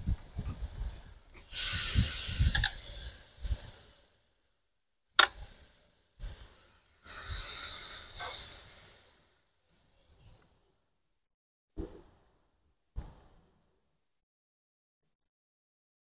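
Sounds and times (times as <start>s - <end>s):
meat sizzling on grill: 6.6s - 8.9s.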